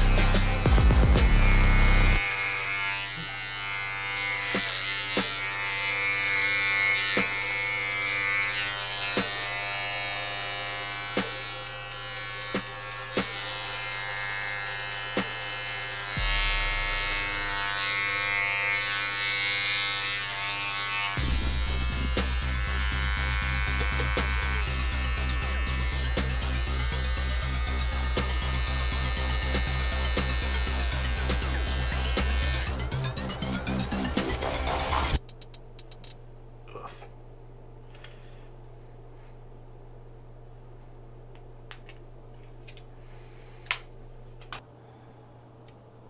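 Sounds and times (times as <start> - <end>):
background music: 0.0 - 2.2, 21.2 - 35.2
electric hair clippers buzzing: 0.0 - 36.2
deep bass note: 16.2 - 17.3, 21.2 - 35.2.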